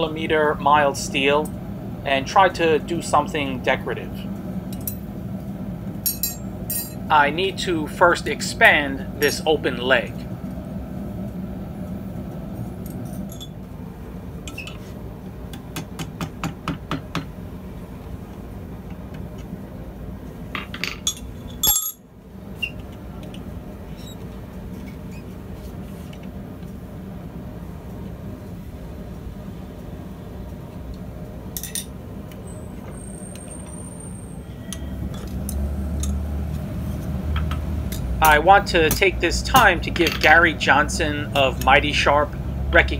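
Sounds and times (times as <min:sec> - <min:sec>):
metal tools clinking and tapping: 0:06.1 - 0:07.0, 0:20.6 - 0:22.0, 0:31.6 - 0:31.9.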